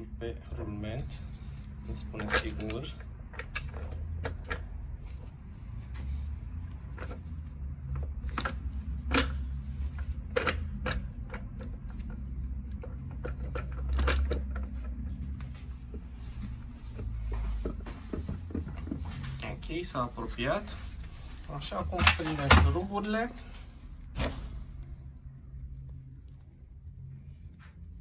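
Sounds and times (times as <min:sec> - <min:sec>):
low steady hum: 0:00.0 - 0:28.0
metal clicks and knocks: 0:02.1 - 0:04.8, 0:07.9 - 0:15.4.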